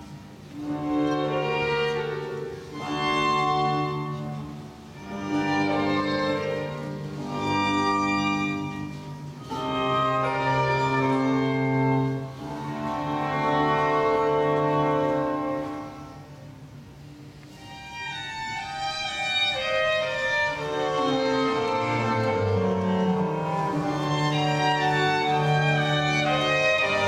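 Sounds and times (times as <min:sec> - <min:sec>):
orchestral string music: 0:00.0 - 0:27.0.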